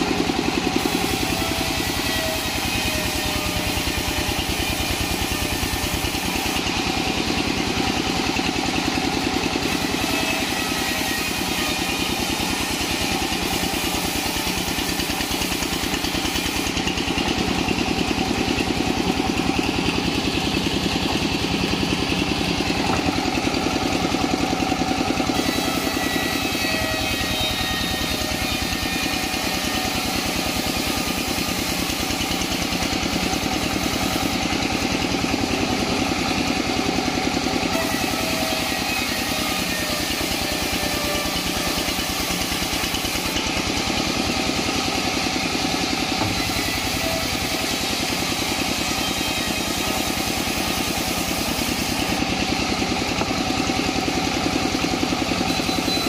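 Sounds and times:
band saw running: 0:00.0 - 0:56.0.

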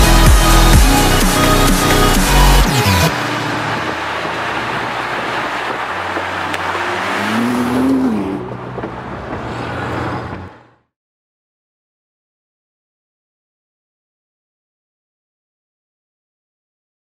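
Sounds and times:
car engine driving: 0:00.0 - 0:10.9
road noise: 0:00.0 - 0:11.0.

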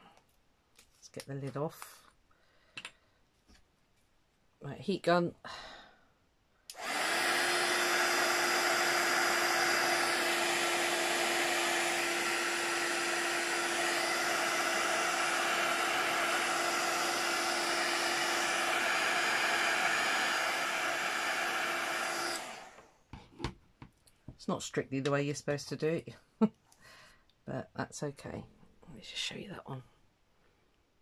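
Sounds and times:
heat gun blowing air: 0:06.7 - 0:23.0
heat gun motor hum: 0:06.7 - 0:23.0.

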